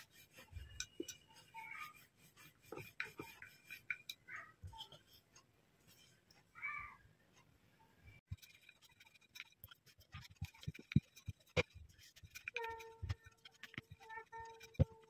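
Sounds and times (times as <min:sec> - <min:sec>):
hands patting dough: 0:08.2 - 0:15.0.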